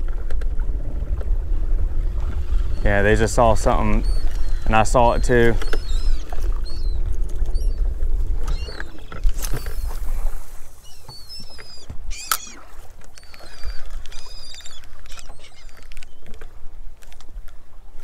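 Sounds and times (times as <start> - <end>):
wind rumble on microphone: 0.0 - 18.0
seabirds squeaky calls: 2.6 - 16.3.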